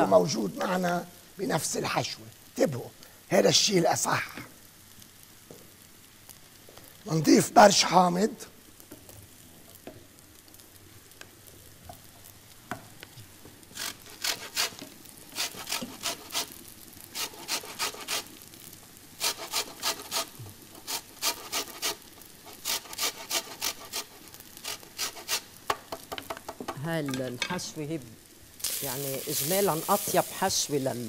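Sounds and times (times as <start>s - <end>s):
lemon rind grated on metal grater: 17.2s - 18.3s, 19.2s - 25.4s.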